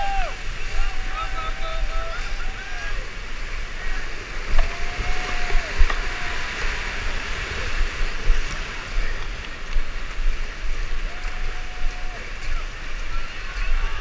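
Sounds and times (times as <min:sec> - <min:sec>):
whitewater rushing and splashing: 0:00.0 - 0:14.0
wind buffeting on microphone: 0:03.3 - 0:14.0.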